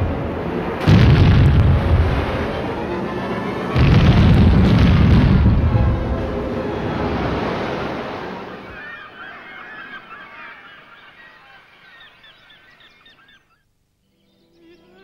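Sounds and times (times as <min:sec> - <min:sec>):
loud rumble: 0:00.0 - 0:08.0
flock of birds honking: 0:02.0 - 0:13.6.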